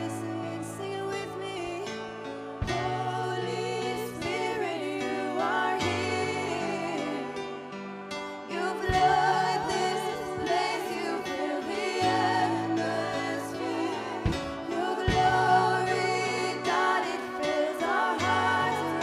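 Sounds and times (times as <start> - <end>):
woman singing worship song: 0.0 - 19.0
drum hits: 14.3 - 15.6.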